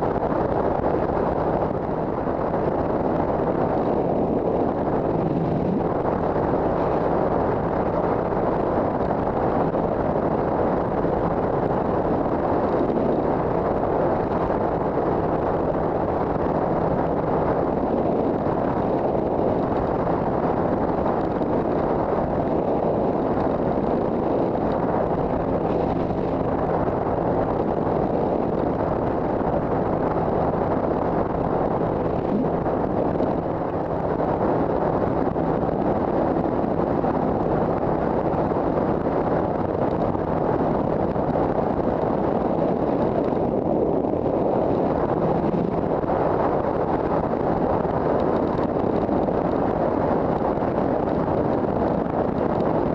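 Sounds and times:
wind rush on microphone: 0.0s - 52.9s.

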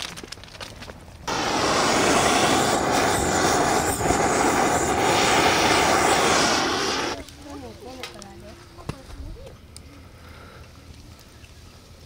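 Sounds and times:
gas torch flame hissing: 1.3s - 7.3s.

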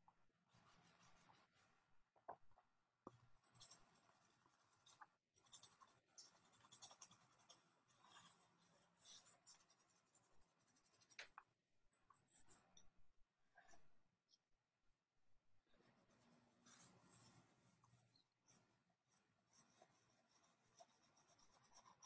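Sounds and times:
pencil scratching on paper: 0.5s - 1.9s, 3.0s - 11.5s, 15.8s - 22.0s.

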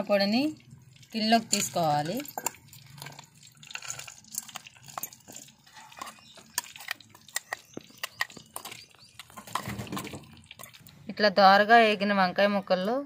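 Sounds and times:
spoon scraping metal jar: 1.2s - 10.9s.

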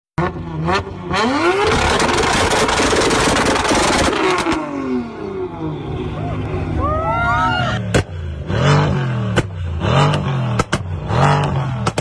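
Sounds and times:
car engine revving: 0.2s - 6.8s, 7.7s - 12.0s
exhaust crackling pops: 1.7s - 4.7s, 9.3s - 12.0s.

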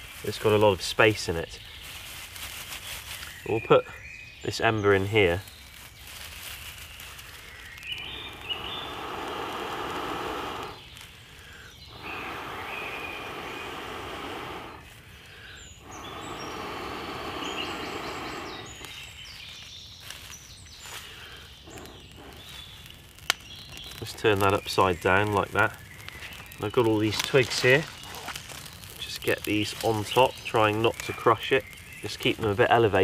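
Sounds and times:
person blowing breaths: 7.4s - 19.0s, 20.9s - 22.8s.

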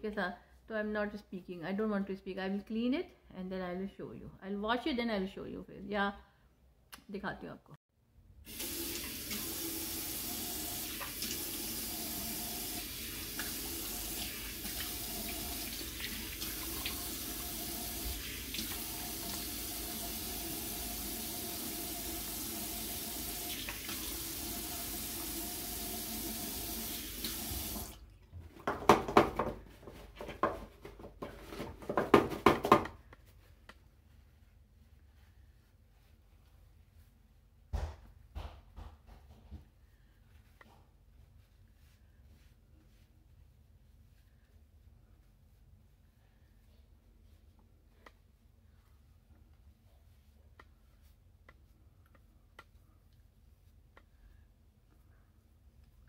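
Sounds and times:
sink tap running: 8.5s - 28.0s
tissue rubbing and rustling: 33.1s - 37.7s, 40.0s - 51.8s.

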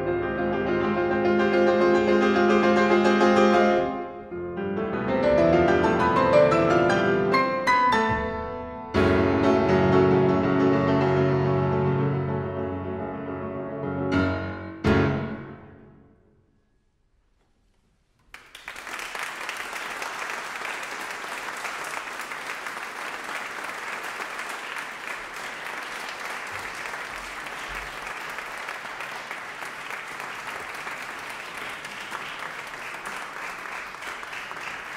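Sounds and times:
audience applause: 18.3s - 34.9s.

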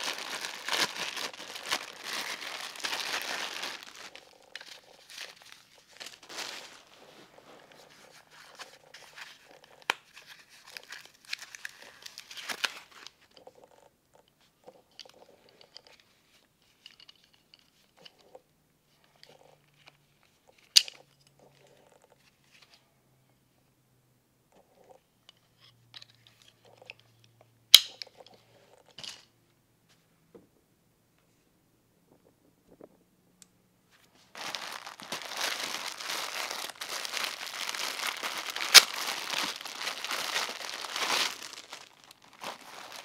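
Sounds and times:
plastic packaging crinkling: 0.0s - 13.9s, 34.2s - 43.0s.

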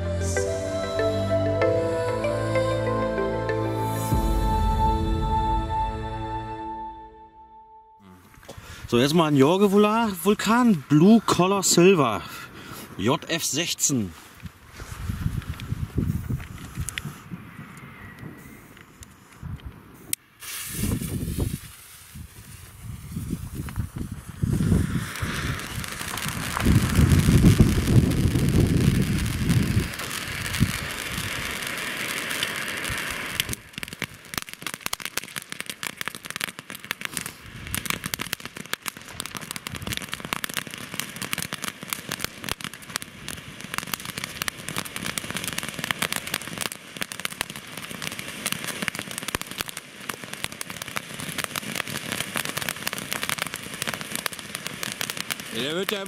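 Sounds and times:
firework fountain hissing and crackling: 8.3s - 56.0s.

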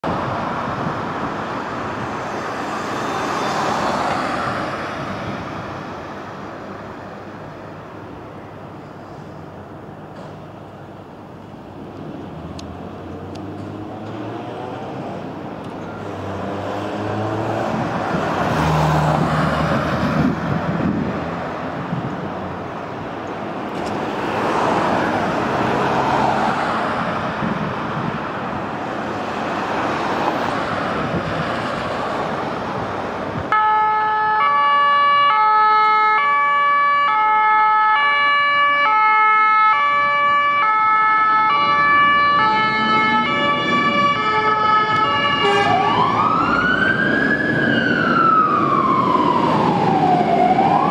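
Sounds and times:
road traffic passing: 0.0s - 50.9s
fire engine two-tone horns: 33.5s - 46.2s.

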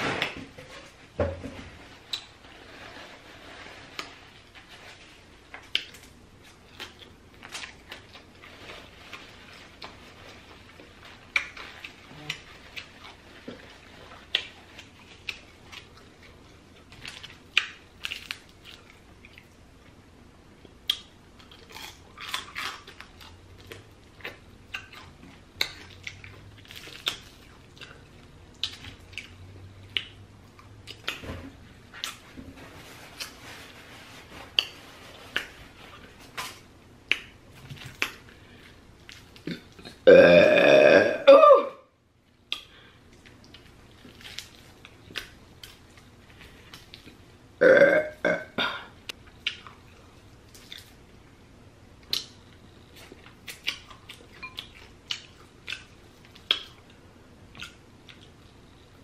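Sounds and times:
chewing crispy chicken: 5.5s - 19.9s, 20.6s - 31.2s, 42.5s - 47.2s
loud burp: 39.5s - 41.8s, 47.6s - 48.9s.

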